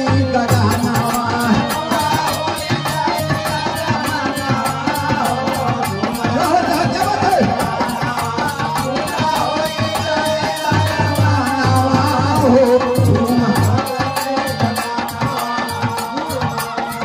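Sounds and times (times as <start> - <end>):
harmonium melody: 0.0 - 17.0
percussion rhythm: 0.0 - 17.0.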